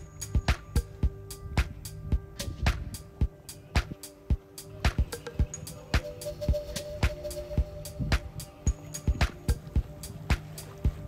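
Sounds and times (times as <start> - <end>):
background music with percussion: 0.0 - 11.0.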